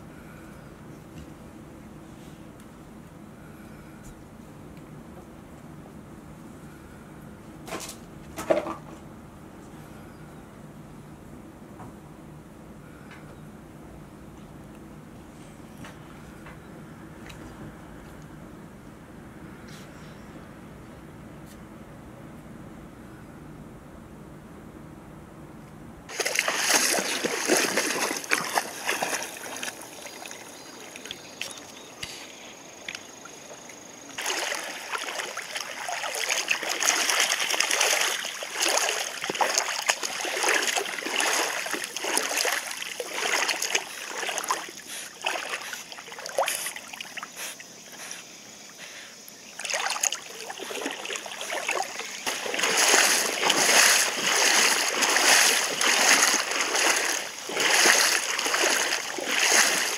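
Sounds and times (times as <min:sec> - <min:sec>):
dogs splashing in water: 0:26.1 - 0:32.2, 0:33.4 - 0:47.7, 0:49.6 - 0:59.9
stream water flowing: 0:26.1 - 0:47.8, 0:49.4 - 0:59.9.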